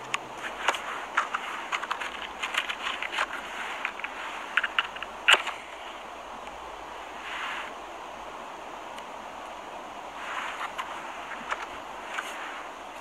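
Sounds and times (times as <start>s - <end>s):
steady hiss: 0.0s - 13.0s
rocks scraping and clicking: 0.4s - 5.7s, 10.5s - 12.4s.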